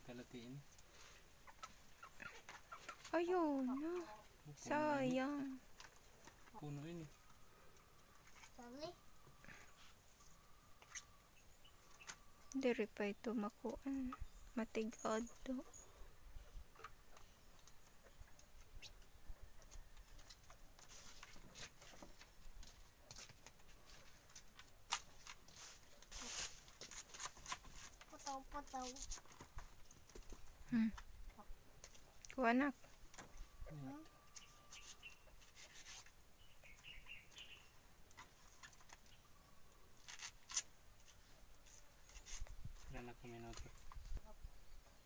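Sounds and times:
faint bird chirps: 8.4s - 16.6s, 17.2s - 20.3s, 33.4s - 39.9s.

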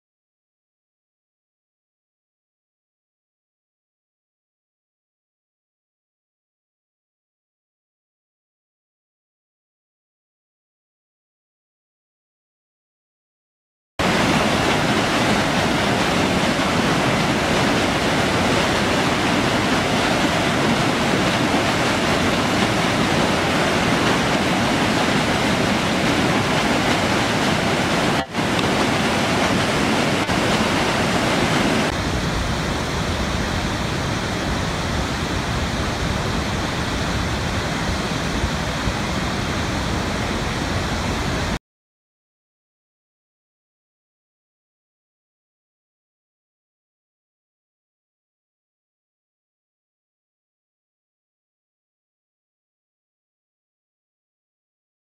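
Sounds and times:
waterfall rushing: 14.0s - 41.6s.

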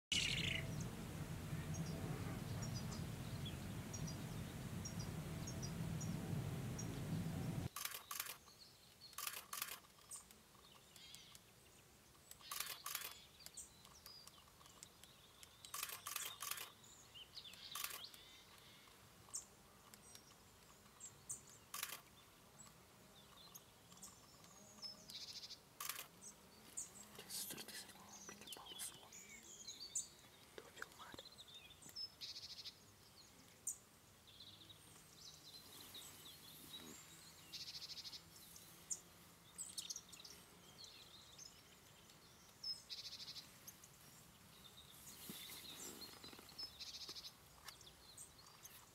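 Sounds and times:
small bird chirps: 0.1s - 0.9s, 1.6s - 11.6s, 12.2s - 48.9s
low outdoor rumble: 0.1s - 7.7s.

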